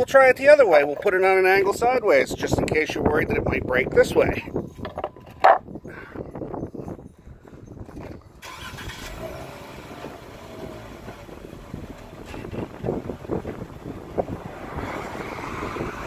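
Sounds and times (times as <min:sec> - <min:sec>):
car engine idling: 0:08.4 - 0:14.5.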